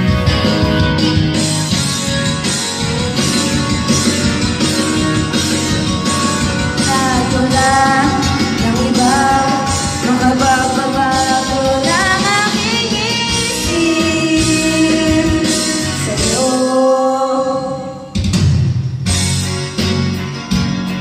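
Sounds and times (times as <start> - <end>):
backing music track: 0.0 - 21.0
woman singing karaoke: 6.1 - 18.2.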